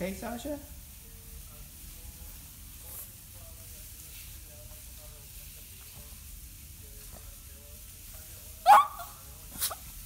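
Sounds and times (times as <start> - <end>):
background hiss: 0.0 - 10.0
dog whimpering: 8.7 - 9.8.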